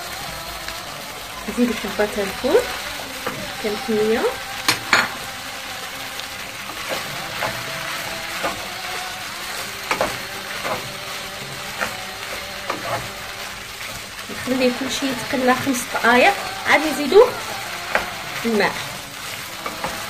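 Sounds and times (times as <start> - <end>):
peas sizzling in oil: 0.0 - 20.0.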